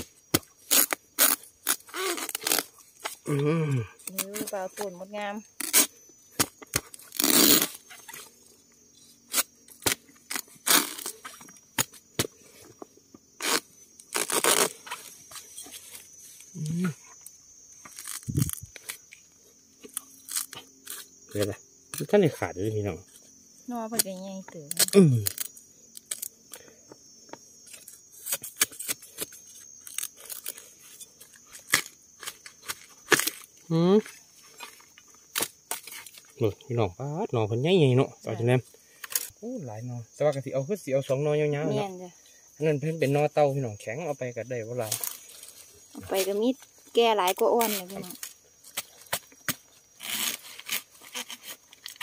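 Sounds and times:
bamboo cracking and tearing: 0.0s - 4.9s, 5.6s - 8.3s, 9.3s - 12.4s, 13.4s - 22.1s, 24.7s - 26.7s, 27.6s - 36.3s, 39.0s - 39.4s, 44.8s - 46.3s, 47.2s - 52.0s.

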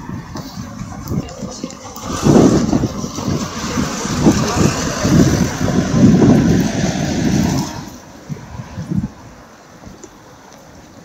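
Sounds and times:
car driving past: 0.4s - 8.1s.

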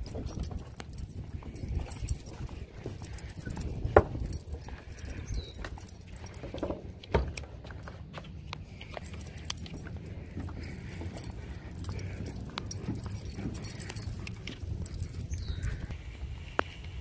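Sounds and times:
footsteps on wooden walkway: 0.0s - 15.9s
leash and collar jingle: 0.0s - 16.0s.

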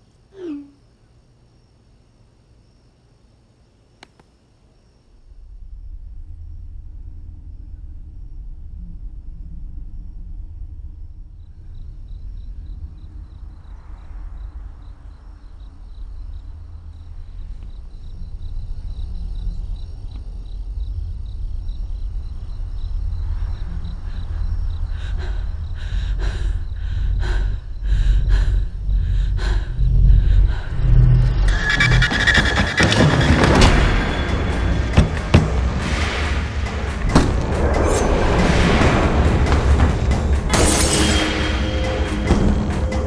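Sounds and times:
night insects chirring: 0.0s - 43.0s
deep rumbling drone: 5.2s - 40.7s
sharp hits: 31.4s - 43.0s.

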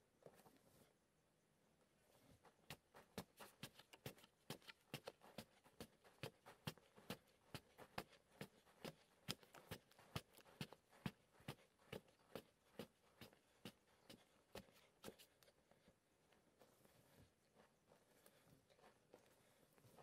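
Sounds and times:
stick jabbing into sandy soil: 2.6s - 15.4s.

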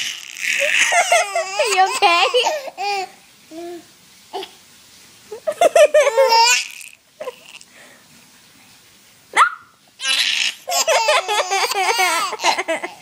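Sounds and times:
baby squealing: 0.0s - 3.0s, 9.4s - 12.6s
baby laughing: 0.0s - 3.2s, 5.5s - 7.6s, 10.0s - 13.0s.

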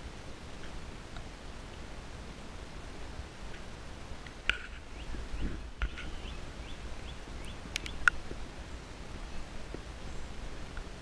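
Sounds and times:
bird chirping: 4.6s - 8.2s
handling clicks and snaps: 7.4s - 8.2s.

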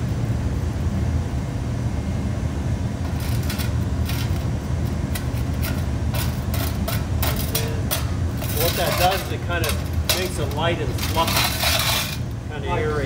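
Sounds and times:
steady low rumble: 0.0s - 13.0s
sand rubbed through metal sieve: 3.1s - 12.3s.

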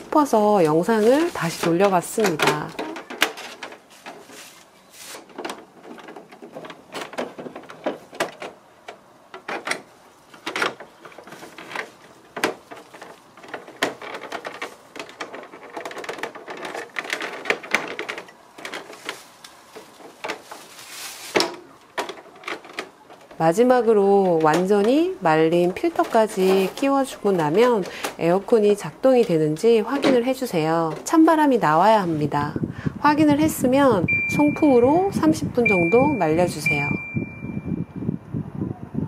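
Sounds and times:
plastic panels clicking and knocking: 0.6s - 4.4s, 5.2s - 20.7s, 21.3s - 31.7s.

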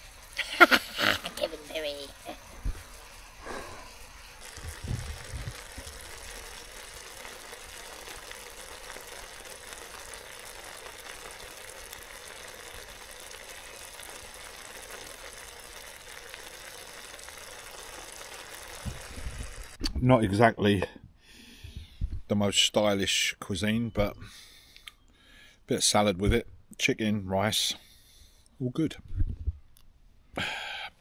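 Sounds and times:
food sizzling in a pan: 0.0s - 19.8s.

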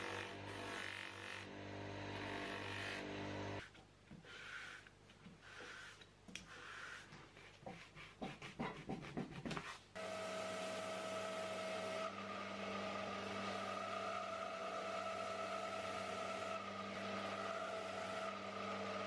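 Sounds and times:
bench grinder humming: 0.0s - 3.6s, 10.0s - 19.0s
belt sander humming: 10.0s - 19.0s.

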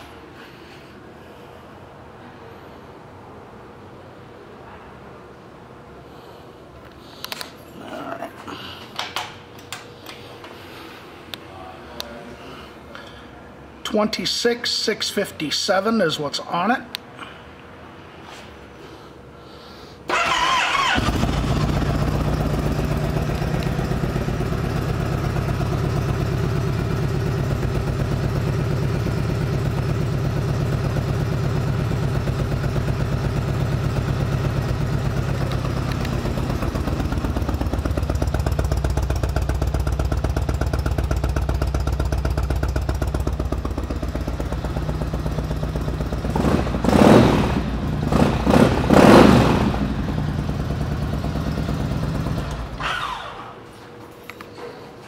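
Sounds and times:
engine revving: 20.1s - 24.1s, 44.8s - 53.4s
motorcycle starter whir: 20.1s - 53.6s
motorcycle engine idling: 20.2s - 53.0s.

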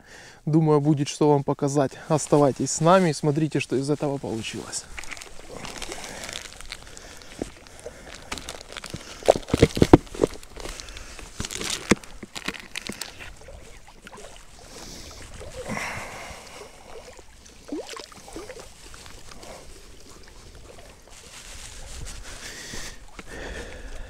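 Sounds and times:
water sloshing into bucket: 2.2s - 23.3s
plastic bag crackling: 3.9s - 15.8s, 21.0s - 22.6s.

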